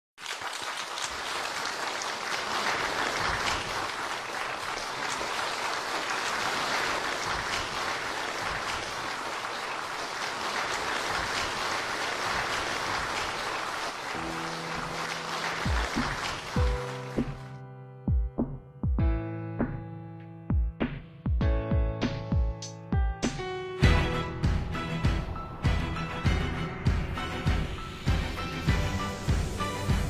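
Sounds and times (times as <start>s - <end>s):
audience applause: 0.2s - 17.6s
music: 14.1s - 30.0s.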